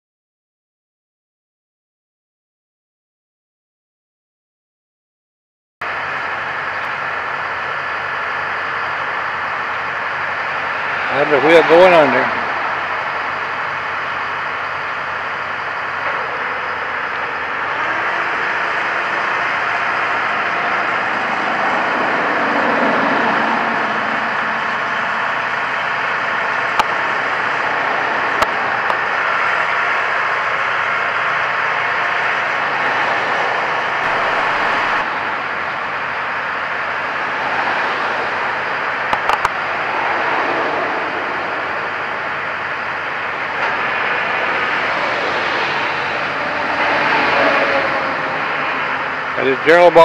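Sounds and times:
heavy diesel engine running: 5.8 - 50.0.

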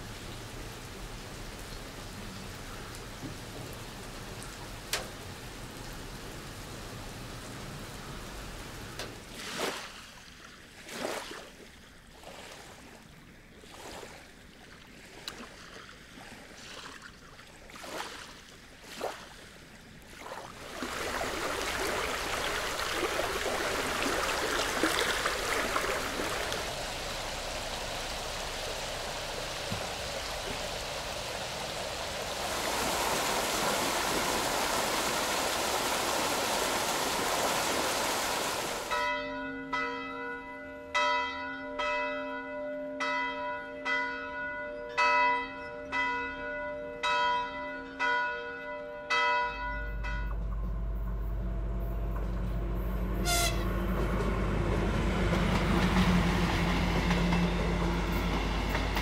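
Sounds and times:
small waves lapping on sand: 9.2 - 39.0
fountain water pouring into pool: 20.2 - 39.0
church bells ringing: 38.9 - 51.0.

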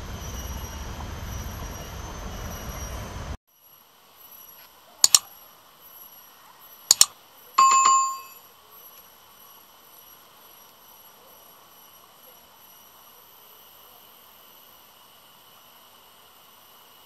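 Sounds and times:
double mouse click: 5.0 - 5.2, 6.9 - 7.1
notification bell ding: 6.9 - 8.4.

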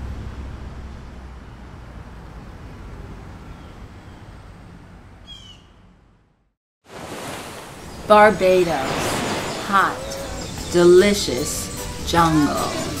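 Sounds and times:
city traffic hum: 0.0 - 6.5
bird chirp: 5.2 - 5.8, 8.9 - 13.0.

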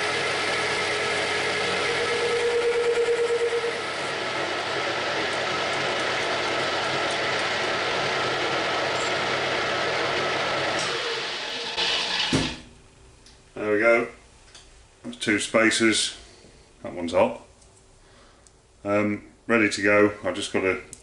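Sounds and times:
metal lathe gears whirring: 0.0 - 12.3.

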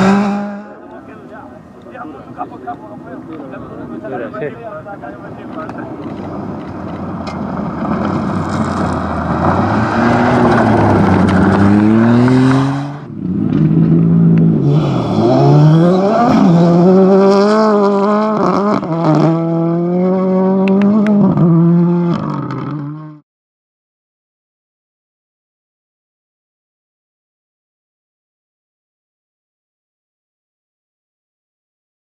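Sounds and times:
rally car revving with crackles: 0.0 - 1.0, 5.4 - 23.2
rally car engine at full throttle: 0.0 - 1.5, 5.2 - 23.2.

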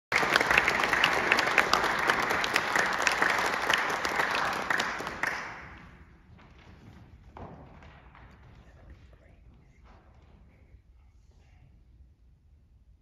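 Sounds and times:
audience applauding: 0.1 - 6.1.

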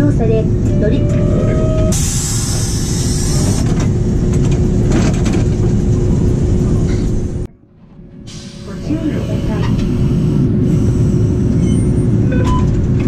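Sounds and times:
road traffic rumble: 8.3 - 13.0.

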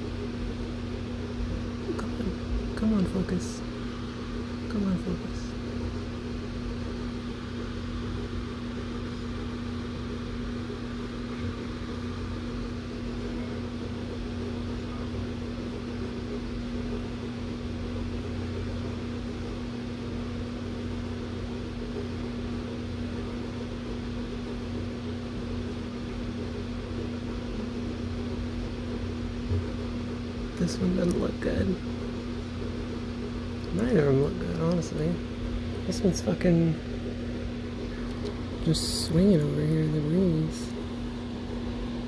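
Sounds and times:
electric fan running: 0.0 - 42.0.

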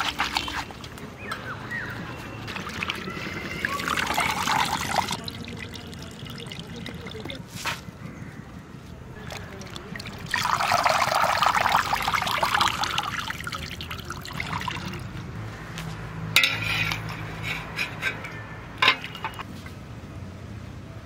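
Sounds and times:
water pouring and splashing: 0.0 - 1.0, 2.2 - 7.8, 9.2 - 15.2.

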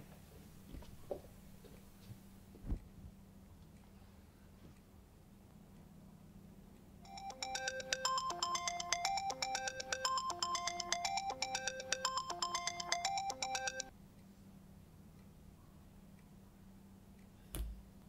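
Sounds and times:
smartphone ringtone melody: 7.1 - 13.9.

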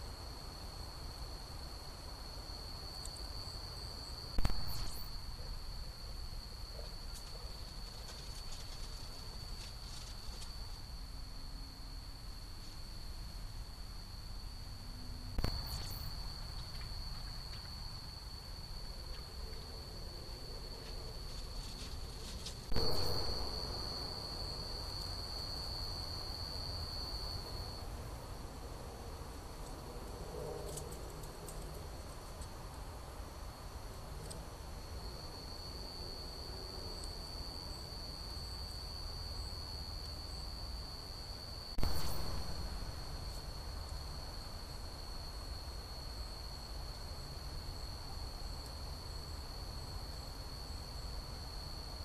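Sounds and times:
high-pitched insect chorus: 0.0 - 28.1, 34.2 - 52.0
faint low rumble: 11.3 - 32.5, 41.8 - 45.4
cricket trilling: 13.7 - 27.8.

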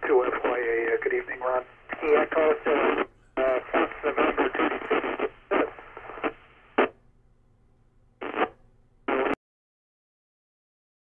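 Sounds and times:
radio static: 0.0 - 7.0, 8.2 - 9.4
radio voice fragments: 0.0 - 7.0.

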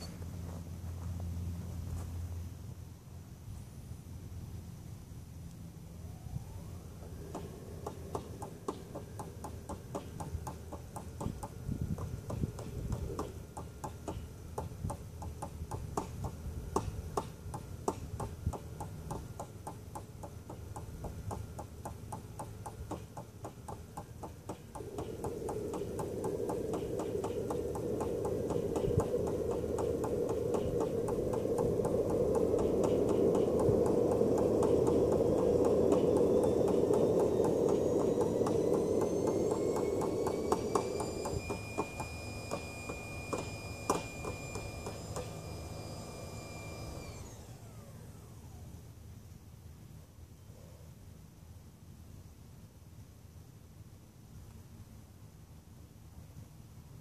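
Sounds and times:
turbine rushing with rising whine: 4.1 - 48.9
rapid regular ticking: 18.2 - 41.0.

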